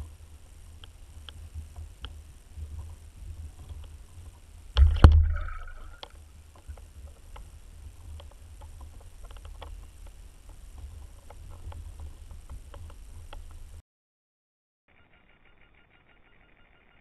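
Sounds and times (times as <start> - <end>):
faint clicks: 0.0 - 13.8
low water rumble: 0.0 - 13.8
underwater thump and swirl: 4.8 - 6.0.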